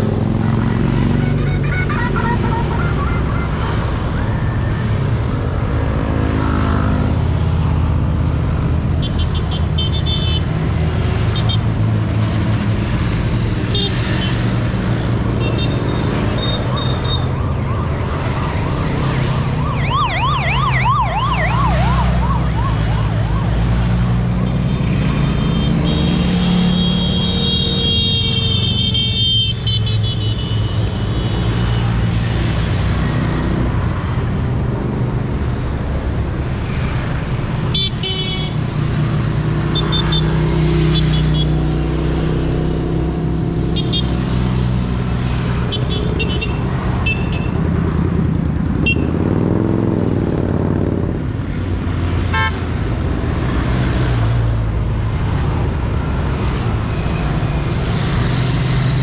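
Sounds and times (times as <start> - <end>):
motorcycle engines running: 0.0 - 2.4, 40.8 - 59.0
wailing siren: 0.6 - 5.8, 16.5 - 25.5.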